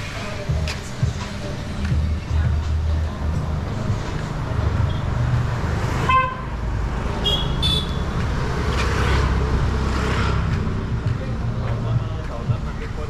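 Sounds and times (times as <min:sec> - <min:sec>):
low rumble of engines: 0:00.0 - 0:13.0
vehicle horn toot: 0:06.0 - 0:06.6, 0:07.2 - 0:08.1.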